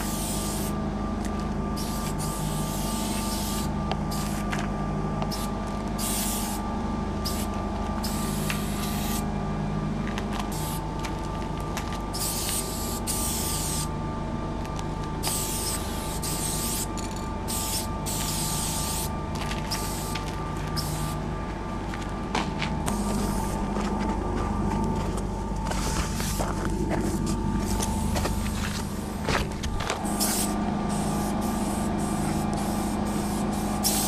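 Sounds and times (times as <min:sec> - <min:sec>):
spray paint can hissing: 0:00.0 - 0:00.8, 0:01.8 - 0:04.5, 0:05.2 - 0:06.6, 0:07.2 - 0:09.2, 0:10.5 - 0:10.8, 0:12.1 - 0:13.9, 0:15.2 - 0:21.2, 0:30.0 - 0:34.0
background hum: 0:00.0 - 0:34.0.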